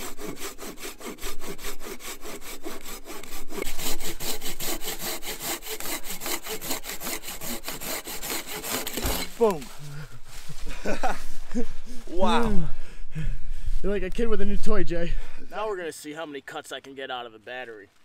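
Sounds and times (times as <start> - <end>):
hand saw cutting log: 0.0 - 9.7.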